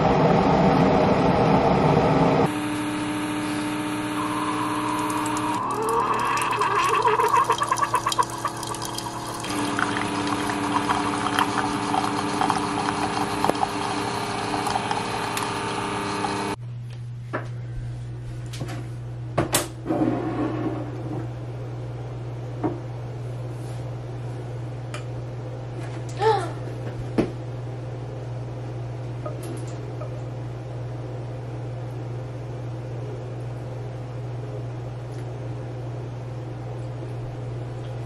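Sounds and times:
coffee maker running: 0:00.0 - 0:16.6
low hum: 0:00.0 - 0:18.2
coffee streaming into mug: 0:04.8 - 0:16.6.

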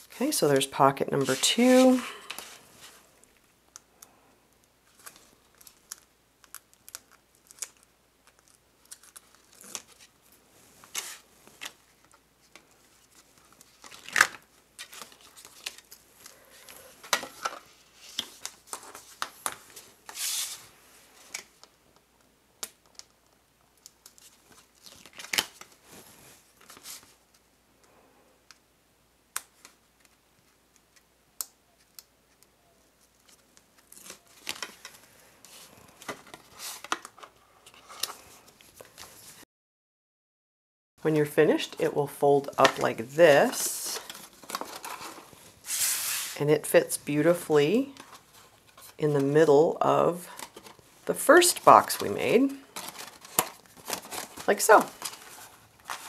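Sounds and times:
cardstock handled and folded: 0:00.0 - 0:03.9, 0:04.6 - 0:27.5, 0:29.4 - 0:39.4, 0:41.5 - 0:56.0
scratchy rustles: 0:43.6 - 0:46.4.

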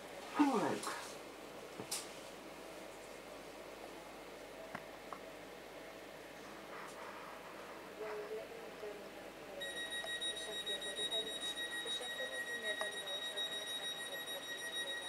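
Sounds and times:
train door warning tone: 0:09.6 - 0:15.0.

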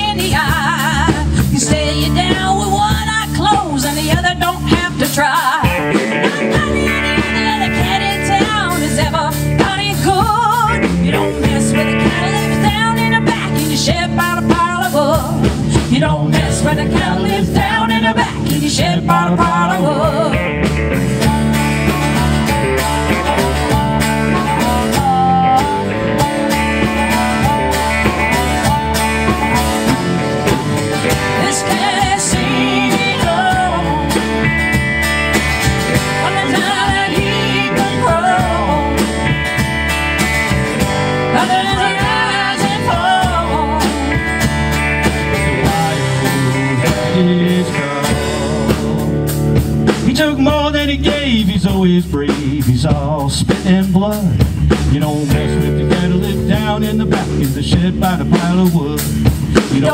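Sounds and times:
drums: 0:00.0 - 0:59.9
electric bass: 0:00.0 - 0:59.9
electric guitar: 0:00.0 - 0:59.9
strummed acoustic guitar: 0:15.7 - 0:52.0
harmonica: 0:16.4 - 0:49.8.

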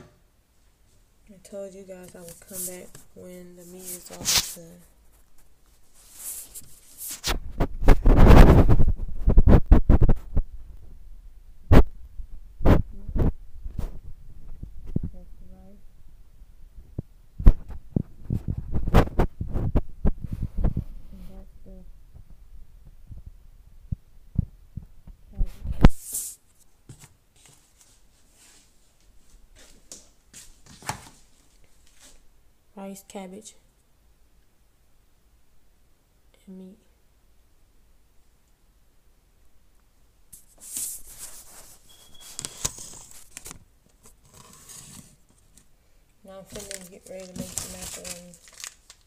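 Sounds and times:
rubbing on phone microphone: 0:01.8 - 0:10.8, 0:12.6 - 0:15.3, 0:16.9 - 0:22.4, 0:24.4 - 0:29.7, 0:40.4 - 0:45.3.

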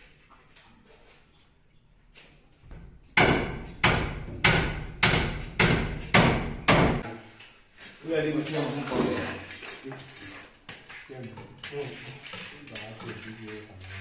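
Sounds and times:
hammer nailing timber: 0:02.7 - 0:07.0.

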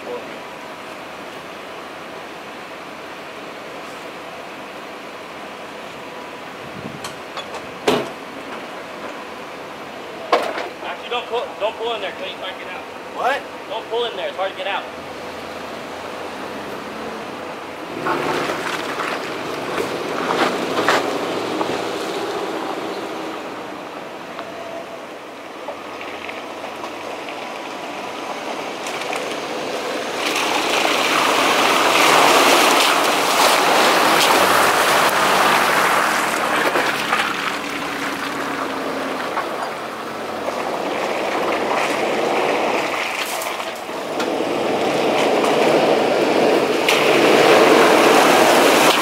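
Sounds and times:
truck engine pulling: 0:00.0 - 0:49.0
tyres splashing water: 0:10.1 - 0:24.2, 0:25.6 - 0:49.0.

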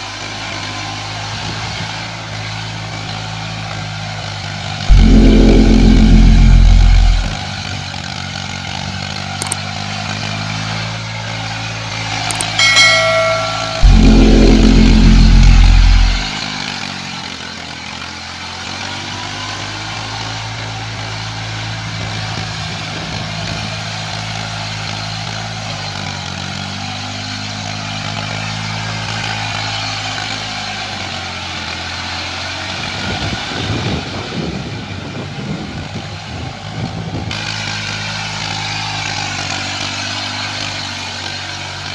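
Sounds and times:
brief chime-like tone: 0:04.9 - 0:07.4, 0:12.4 - 0:16.4
loud low sound: 0:04.9 - 0:07.5, 0:12.6 - 0:16.4.

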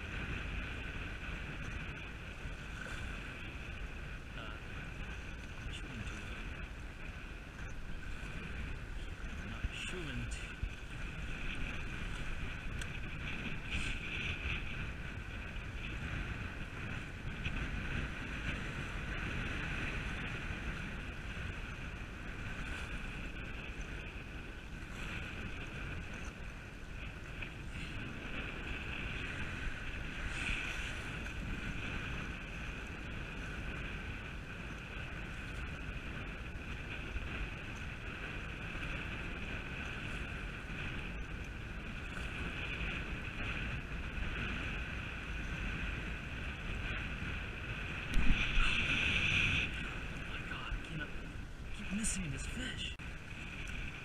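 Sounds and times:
wind buffeting microphone: 0:00.0 - 0:54.0
high-pitched hum: 0:48.0 - 0:53.0
water washing against rocks: 0:48.0 - 0:53.0.

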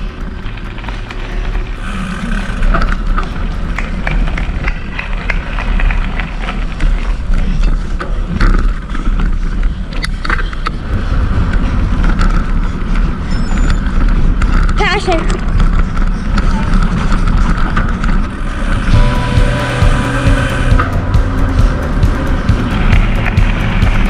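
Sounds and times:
bike tyres rolling on dirt: 0:00.0 - 0:19.8
bike rattling and knocking: 0:00.0 - 0:24.0
steady low rumble: 0:16.9 - 0:24.0.

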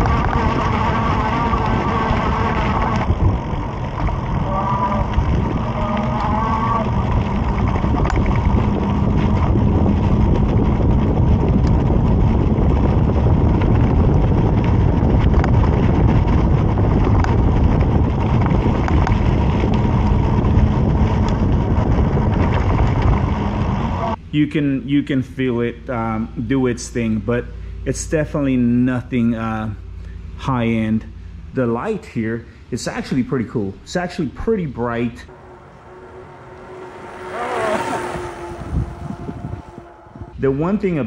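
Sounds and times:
wind rumble on microphone: 0:00.0 - 0:24.2, 0:35.3 - 0:41.0
tyre and road noise: 0:00.0 - 0:24.3, 0:25.0 - 0:41.0.

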